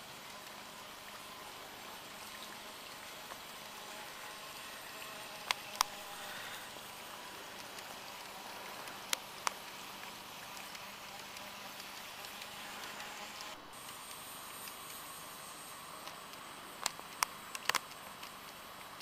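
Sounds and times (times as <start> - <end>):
model locomotive running hiss: 0.0 - 19.0
thin motor whine: 0.0 - 19.0
sharp clicks: 16.0 - 18.6.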